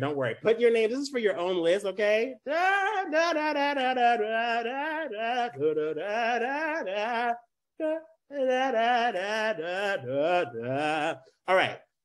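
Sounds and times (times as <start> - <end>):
man singing wordless tune: 1.2 - 12.0.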